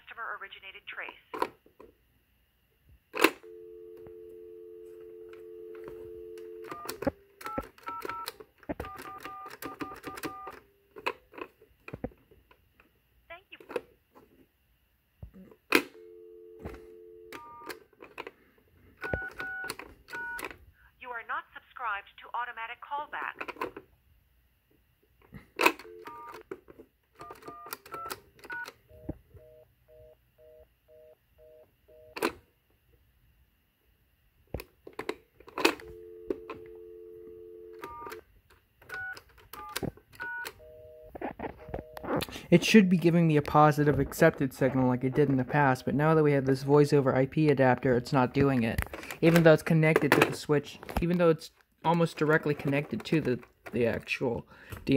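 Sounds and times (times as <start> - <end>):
telephone dial tone: 3.2 - 10.6, 15.7 - 18.3, 19.0 - 20.5, 25.6 - 26.5, 27.2 - 32.3, 35.5 - 38.2, 38.8 - 42.2.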